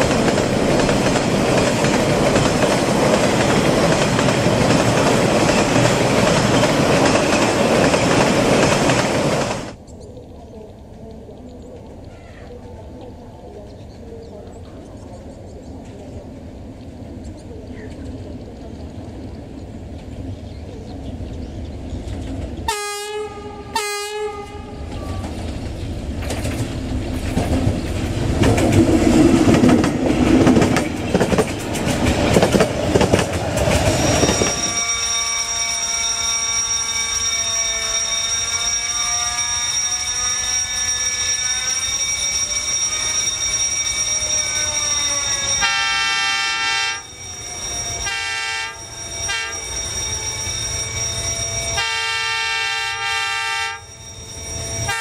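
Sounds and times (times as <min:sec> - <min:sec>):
train rumbling on rails: 0:00.0 - 0:55.0
diesel locomotive horn: 0:22.7 - 0:25.0, 0:34.3 - 0:41.6, 0:45.1 - 0:47.1, 0:48.0 - 0:49.8, 0:51.8 - 0:54.0.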